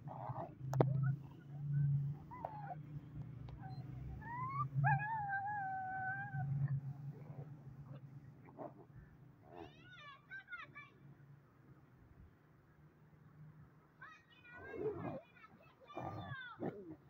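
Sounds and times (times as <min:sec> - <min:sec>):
puppy whining: 0:00.0 - 0:02.9, 0:03.5 - 0:08.1.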